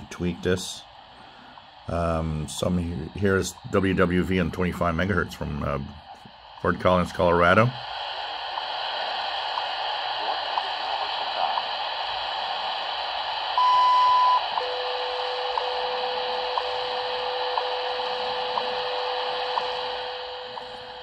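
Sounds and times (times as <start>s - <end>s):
shortwave static hiss: 0.0s - 21.0s
steady lower tone: 0.0s - 21.0s
long high beep: 13.5s - 20.9s.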